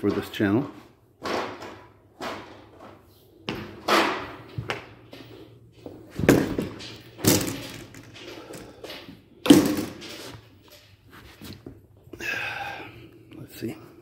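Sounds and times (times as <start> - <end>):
heavy thumps and clunks: 0.0 - 10.2.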